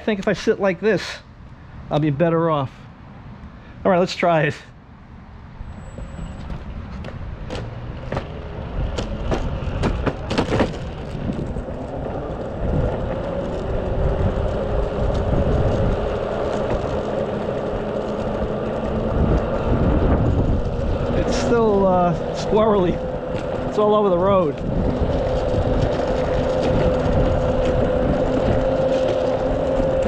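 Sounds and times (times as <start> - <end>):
wheels rumbling on road: 0.0 - 30.0
sharp clicks and knocks: 6.4 - 11.4
electric motor and belt whine: 7.6 - 30.0.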